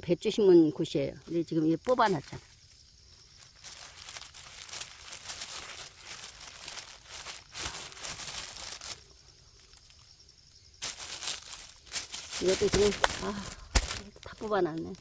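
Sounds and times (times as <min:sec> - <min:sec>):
plastic film crinkling: 0:03.4 - 0:10.0, 0:10.8 - 0:15.0.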